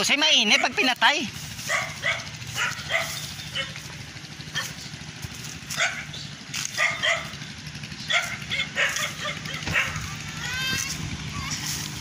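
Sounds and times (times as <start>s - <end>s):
low engine hum: 0.0s - 12.0s
dog barking: 0.4s - 0.9s, 1.6s - 3.8s, 4.5s - 4.8s, 5.7s - 7.4s, 8.0s - 10.1s.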